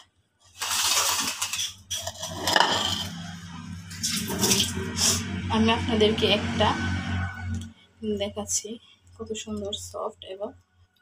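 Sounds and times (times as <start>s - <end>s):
metal spoon scraping a plate: 1.5s - 5.2s.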